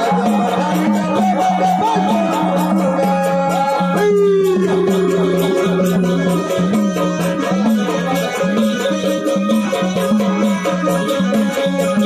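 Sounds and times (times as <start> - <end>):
drum beat: 0.0 - 12.0
jingling rattle percussion: 0.0 - 12.0
wavering melodic line: 1.5 - 8.7.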